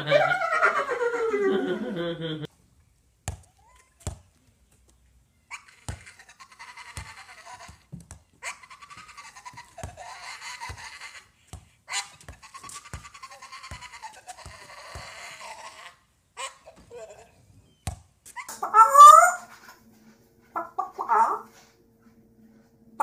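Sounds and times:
dog crying: 0:00.0 - 0:01.9, 0:05.5 - 0:07.8, 0:08.4 - 0:11.3, 0:11.9 - 0:17.4, 0:18.3 - 0:19.5, 0:20.6 - 0:21.5.

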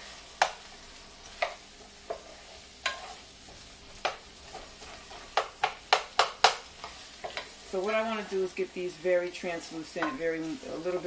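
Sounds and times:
wooden spoon scraping a pan: 0:00.0 - 0:08.5
vegetables sizzling: 0:00.0 - 0:11.0.

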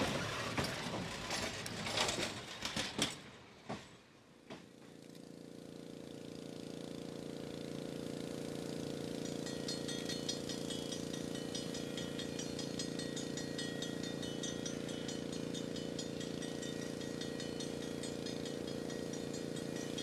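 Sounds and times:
rapid high-pitched ticking: 0:09.1 - 0:20.0.

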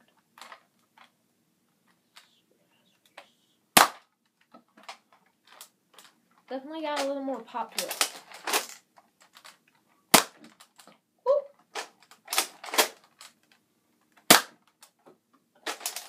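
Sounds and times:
toy blaster firing sharp shots: 0:03.8 - 0:04.0, 0:10.1 - 0:10.4, 0:14.3 - 0:14.6.

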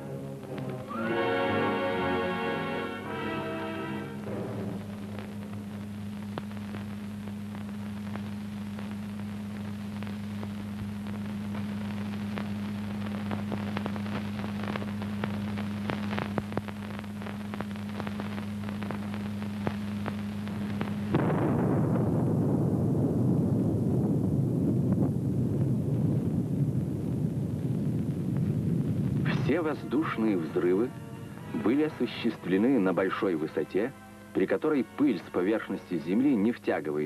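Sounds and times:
electrical hum with hiss: 0:00.0 - 0:37.0
crackling clicks: 0:00.4 - 0:01.0, 0:04.8 - 0:21.8, 0:24.9 - 0:31.0
loud rushing noise: 0:00.9 - 0:05.2.

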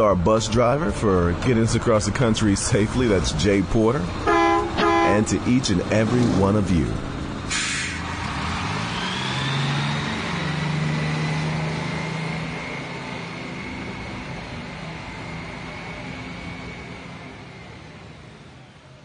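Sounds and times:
bus engine pulling away: 0:00.0 - 0:19.0
short air hiss: 0:07.5 - 0:08.0.

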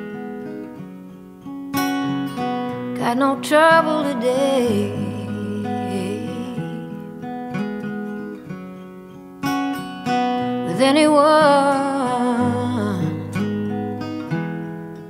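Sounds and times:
acoustic guitar strumming: 0:00.0 - 0:15.0
person singing with vibrato: 0:03.0 - 0:07.1, 0:10.5 - 0:13.5.

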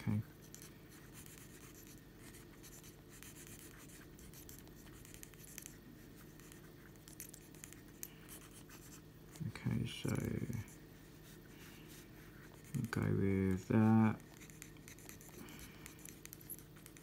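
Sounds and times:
steady low hum: 0:00.0 - 0:17.0
pencil scratching on paper: 0:00.1 - 0:17.0
sharp pencil ticks: 0:02.6 - 0:05.8, 0:14.1 - 0:17.0.

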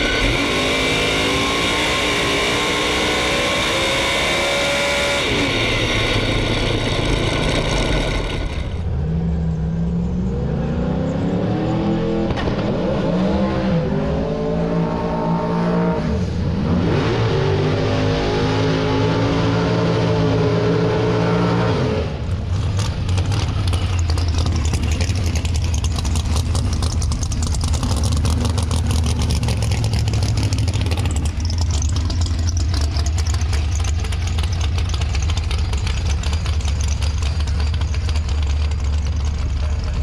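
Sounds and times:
drag car engine at high revs: 0:00.0 - 0:09.2, 0:10.0 - 0:40.0
drag car engine idling roughly: 0:06.0 - 0:08.9, 0:22.4 - 0:40.0.

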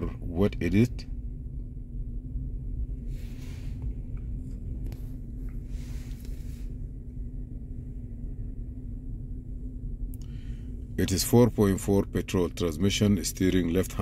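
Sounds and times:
low hum and rumble: 0:00.0 - 0:14.0
soft hissing rustles: 0:03.0 - 0:07.0.

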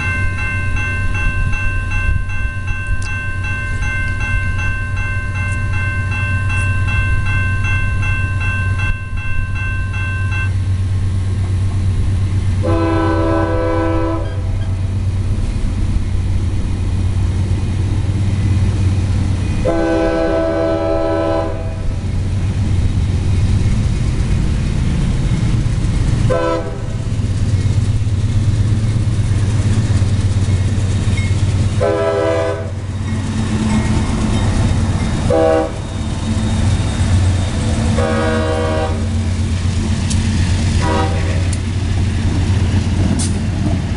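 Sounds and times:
crossing warning bell ringing: 0:00.0 - 0:11.6, 0:12.3 - 0:15.0, 0:18.1 - 0:42.7
low locomotive rumble: 0:00.0 - 0:43.9
locomotive air horn blasts: 0:12.6 - 0:14.8, 0:19.6 - 0:22.0, 0:26.3 - 0:27.0, 0:31.8 - 0:32.9, 0:35.3 - 0:35.9, 0:37.9 - 0:39.3, 0:40.8 - 0:41.6.

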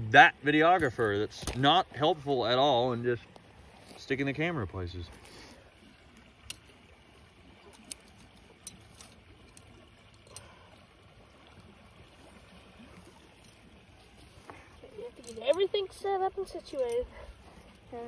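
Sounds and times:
faint steady hiss: 0:00.0 - 0:18.0
metal trap clicks: 0:07.7 - 0:10.5.

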